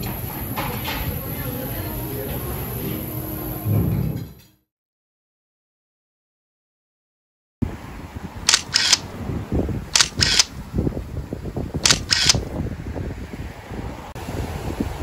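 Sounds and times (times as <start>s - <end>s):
camera shutter double click: 8.5s - 9.1s, 10.0s - 10.5s, 11.8s - 12.5s.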